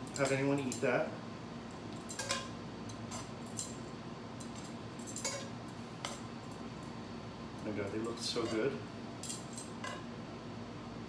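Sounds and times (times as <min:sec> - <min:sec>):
steady low hiss: 0:00.0 - 0:11.0
tongs clinking against frying pan: 0:02.0 - 0:03.8, 0:04.4 - 0:06.2.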